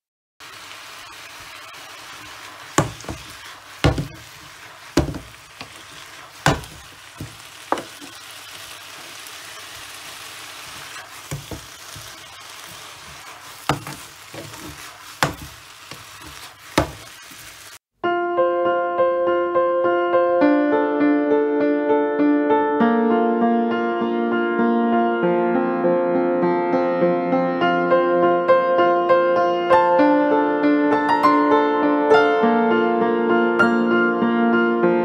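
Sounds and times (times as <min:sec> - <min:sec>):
noodles sizzling in a frying pan: 0:00.4 - 0:17.9
wooden spatula knocking on pan: 0:02.7 - 0:08.2, 0:11.2 - 0:17.5.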